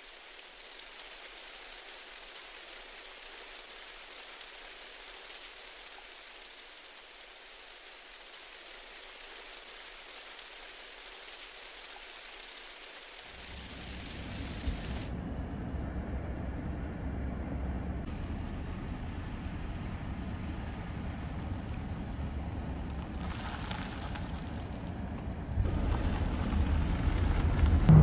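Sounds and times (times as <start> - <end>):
rain on car window: 0.0 - 15.1, 18.8 - 28.0
low rumble: 13.4 - 28.0.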